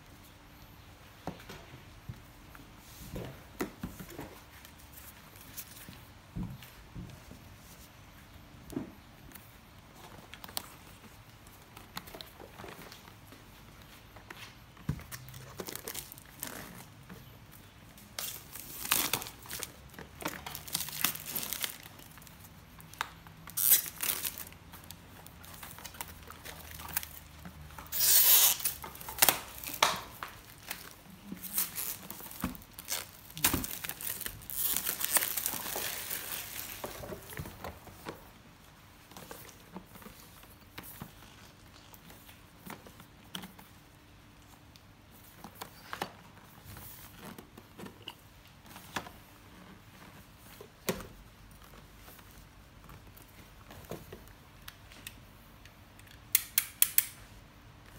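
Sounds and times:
plastic wrap tearing and crinkling: 15.2 - 17.0, 18.0 - 37.4.

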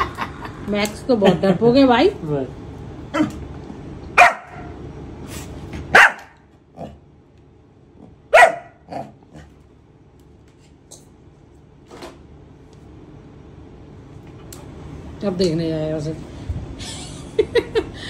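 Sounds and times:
dog barking: 4.2 - 4.8, 5.9 - 6.4, 8.3 - 9.1.

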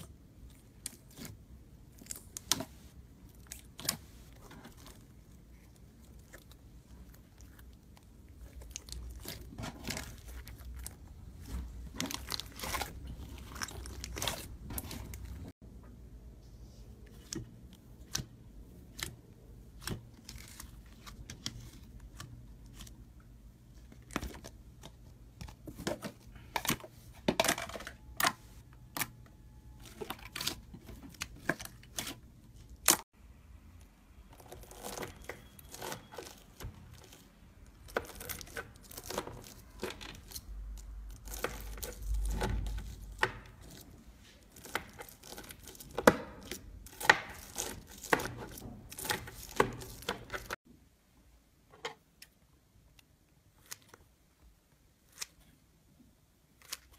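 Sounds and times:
slime crackling and tearing: 3.3 - 15.5, 34.3 - 50.6.

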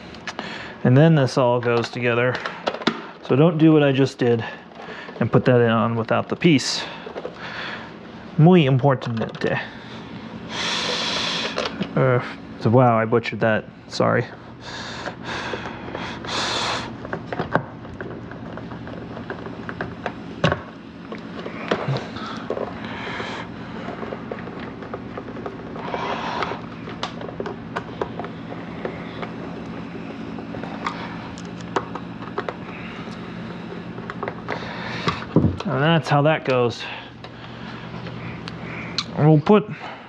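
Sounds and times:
steady low hum: 0.0 - 40.0
plastic parts clicking and scraping: 1.6 - 3.2, 4.6 - 7.5, 11.4 - 12.0, 17.0 - 35.8.

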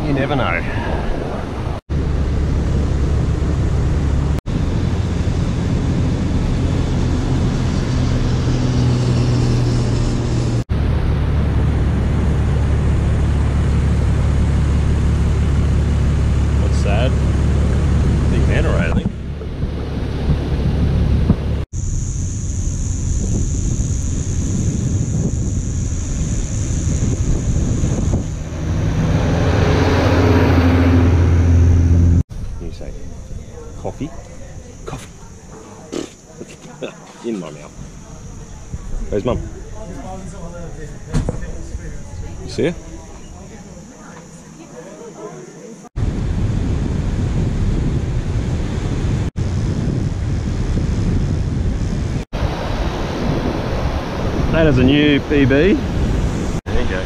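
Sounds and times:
wind buffeting microphone: 0.0 - 35.6, 46.0 - 57.0
vehicle engine droning: 1.9 - 33.3.

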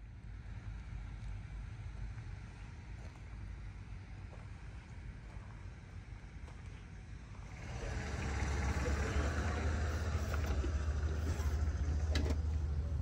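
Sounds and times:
diesel truck idling: 4.6 - 13.0.

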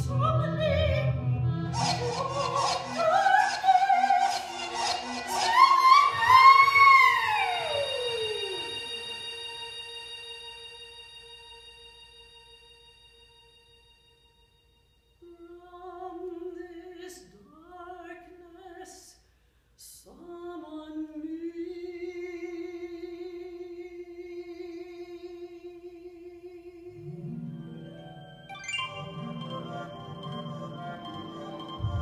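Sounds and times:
soprano voice singing: 0.0 - 9.4, 15.2 - 19.2, 19.8 - 27.2.

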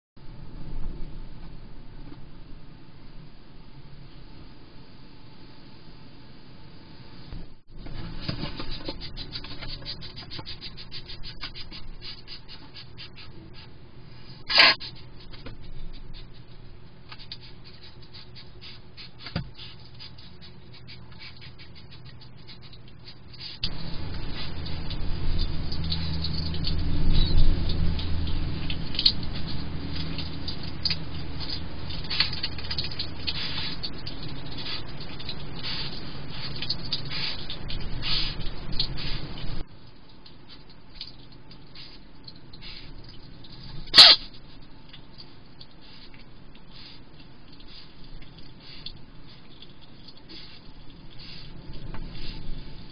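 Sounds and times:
chewing and rustling: 7.9 - 13.7, 14.5 - 52.9
hedgehog crunching food: 8.0 - 13.7, 14.5 - 39.6.

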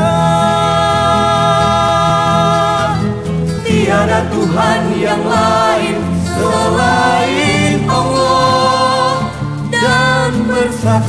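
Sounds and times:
choir singing: 0.0 - 11.0
instrumental accompaniment: 2.2 - 11.0.

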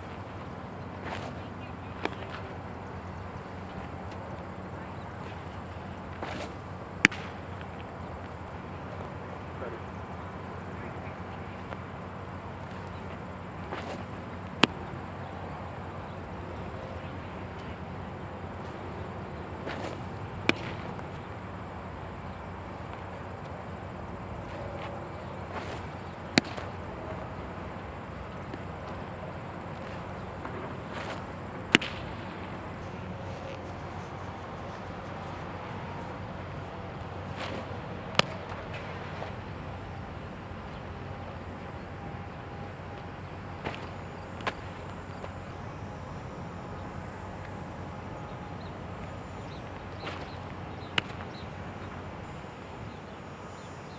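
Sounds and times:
outdoor background hiss: 0.0 - 53.9
baseball smacking into leather mitt: 6.1 - 7.8, 13.6 - 14.8, 19.6 - 21.1, 25.5 - 26.7, 29.8 - 32.1, 37.3 - 38.9, 50.9 - 51.3
ball smacking into leather mitt: 6.2 - 7.4, 25.6 - 26.7, 30.9 - 32.0.

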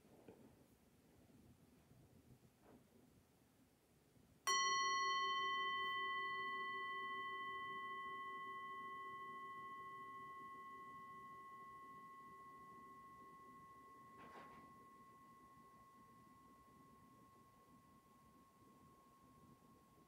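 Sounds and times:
mallet striking singing bowl: 4.5 - 12.2
singing bowl ringing: 4.5 - 20.0.

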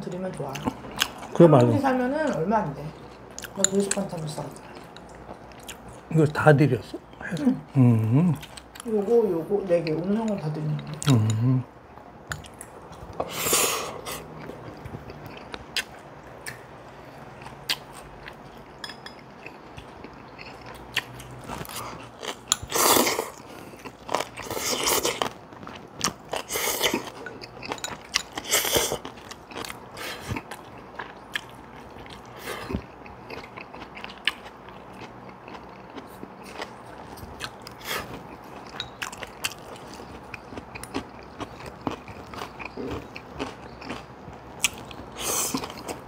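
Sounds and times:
crunchy chewing: 12.3 - 46.0.

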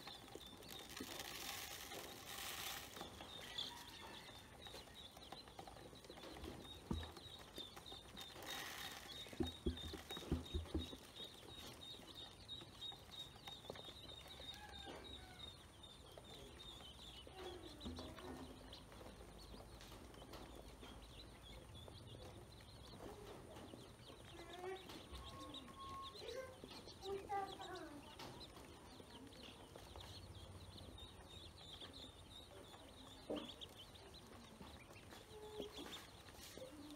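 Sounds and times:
faint high chirps: 0.0 - 18.4, 24.2 - 28.4
ducklings pecking on plastic: 0.0 - 36.9.

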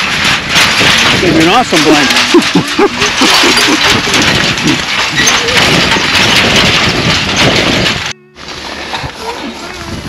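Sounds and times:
wind buffeting microphone: 0.0 - 8.2, 9.0 - 10.0
grass rustling underfoot: 7.3 - 10.0.

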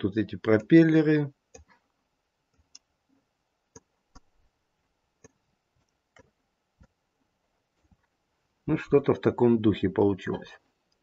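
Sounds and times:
computer mouse clicks: 1.5 - 1.8, 2.5 - 2.9, 3.7 - 4.3.

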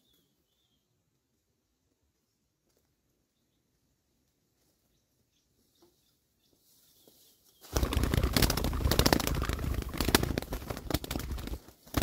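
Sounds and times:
wings flapping: 7.6 - 12.0.

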